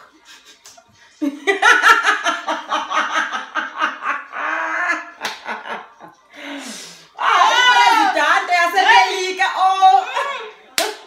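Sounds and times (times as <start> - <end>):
women laughing: 0.0 - 6.3.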